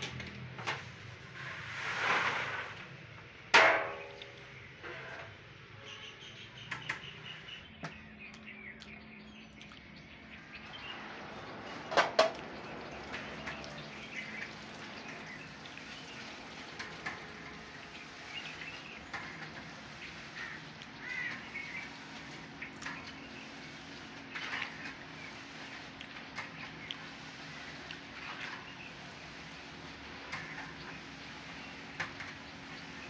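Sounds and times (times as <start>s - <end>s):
birds chirping: 2.5s - 33.0s
dough frying in hot oil: 10.4s - 33.0s.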